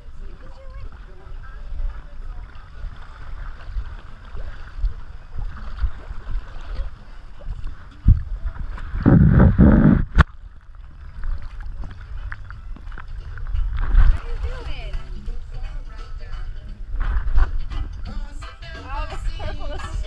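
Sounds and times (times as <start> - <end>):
water sloshing and splashing: 0.0 - 15.5
low microphone rumble: 0.7 - 14.6.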